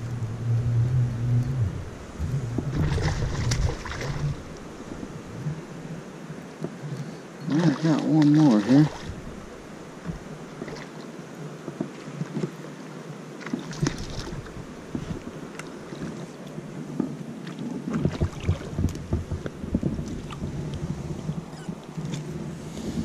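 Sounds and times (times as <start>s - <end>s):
wind buffeting microphone: 0.0s - 6.0s, 17.8s - 23.0s
fish splashing in water: 2.6s - 4.6s.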